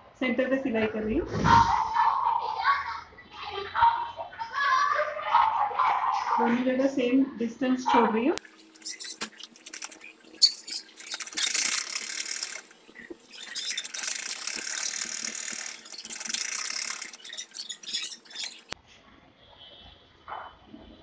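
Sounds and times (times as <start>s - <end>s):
sewing machine stitching: 8.4s - 18.8s
sewing machine mechanism clicks: 10.7s - 18.8s.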